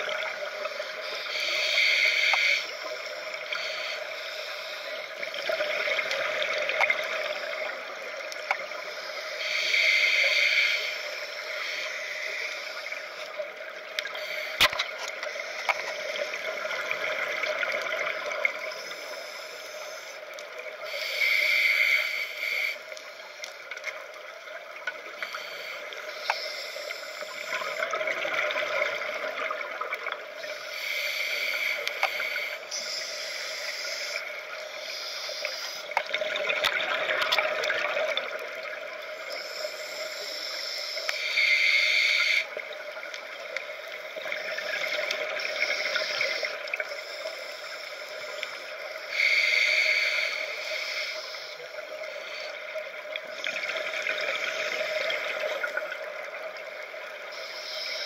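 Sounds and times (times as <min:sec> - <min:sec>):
steady underwater hiss: 0:00.0 - 0:58.0
hissing inhales: 0:20.8 - 0:22.9, 0:45.4 - 0:52.6.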